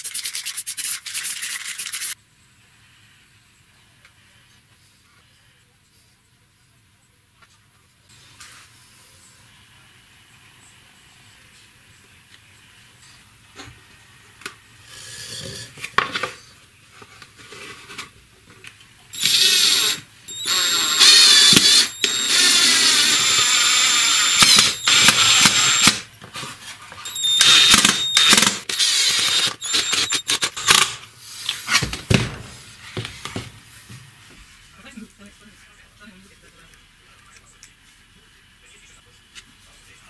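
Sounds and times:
power drill driving screws: 0:19.2 - 0:26.1, 0:27.1 - 0:31.0.

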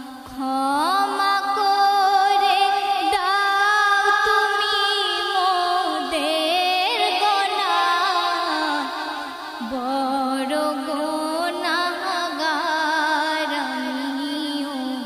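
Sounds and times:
woman singing devotional song: 0:00.0 - 0:15.0.

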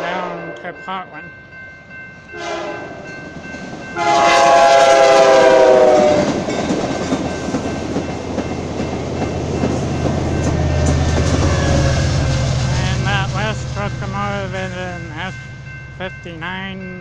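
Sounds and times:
train horn blast: 0:00.0 - 0:00.7, 0:02.3 - 0:03.1, 0:04.0 - 0:06.4, 0:10.8 - 0:13.8
train cars rumbling on rails: 0:00.0 - 0:17.0.

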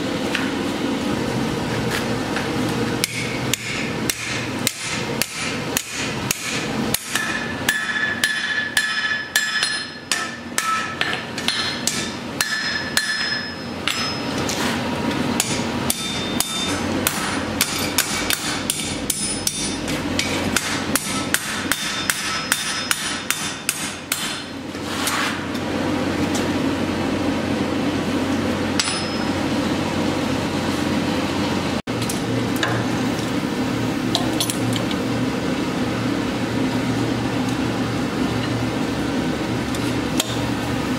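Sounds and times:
mechanical hum: 0:00.0 - 0:40.9
anvil ringing: 0:03.0 - 0:14.4, 0:15.4 - 0:19.9, 0:28.8 - 0:29.5
hammer striking steel on anvil: 0:03.0 - 0:14.5, 0:15.4 - 0:24.6, 0:28.7 - 0:29.4.

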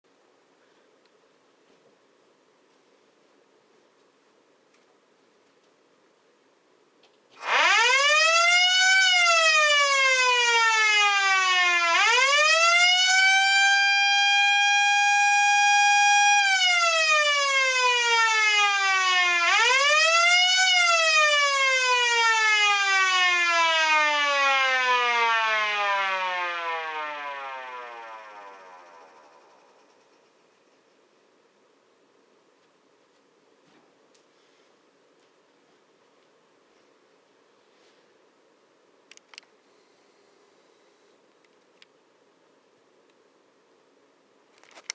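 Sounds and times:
electric siren wailing: 0:07.4 - 0:30.0.

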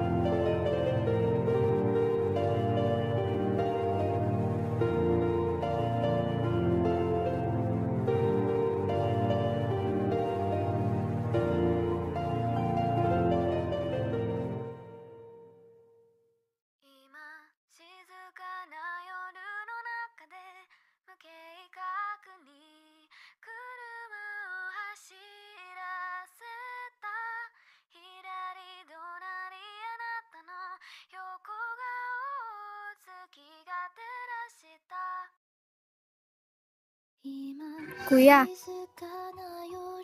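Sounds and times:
woman singing a lullaby: 0:16.8 - 0:35.3, 0:37.2 - 0:40.0.

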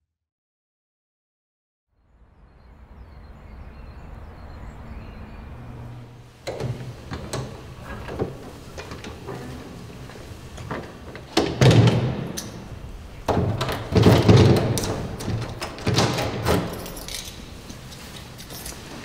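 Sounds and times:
door thuds and latch knocks: 0:10.7 - 0:12.7, 0:13.3 - 0:16.9.

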